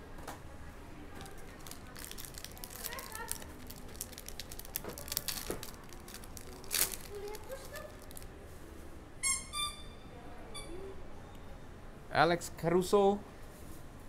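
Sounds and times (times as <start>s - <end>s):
cards being handled: 1.2s - 8.3s
foil wrapper crinkling and tearing: 1.2s - 8.3s.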